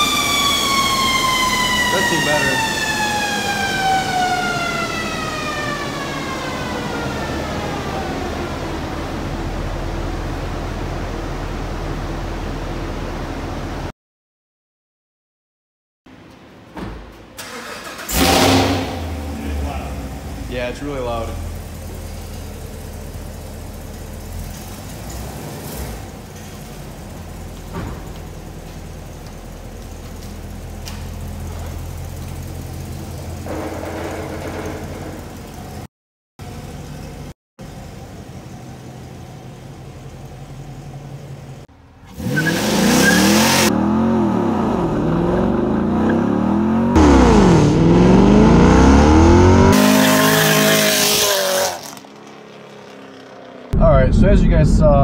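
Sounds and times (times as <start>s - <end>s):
drivetrain and rollers whining: 18.9s - 54.9s
low rush: 53.8s - 55.0s.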